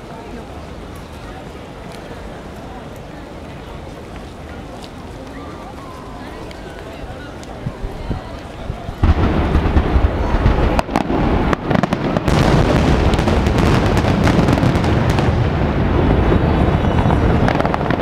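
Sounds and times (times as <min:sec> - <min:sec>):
aerial firework shells bursting: 0:09.0 - 0:16.3.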